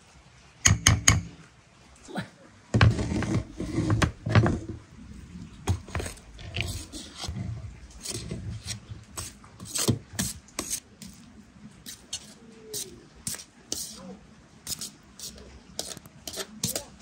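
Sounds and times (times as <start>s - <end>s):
metal spoon scraping colander: 5.7s - 11.2s, 11.9s - 14.0s, 14.7s - 17.0s.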